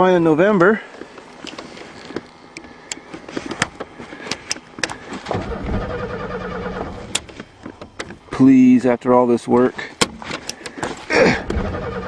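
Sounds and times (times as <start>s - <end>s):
car starter cranking engine: 4.8s - 8.0s, 10.4s - 12.0s.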